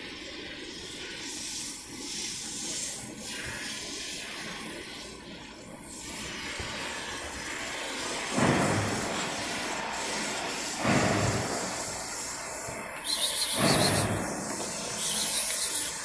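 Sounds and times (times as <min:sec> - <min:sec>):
steady background noise: 0:00.0 - 0:16.0
cat hissing: 0:13.0 - 0:16.0.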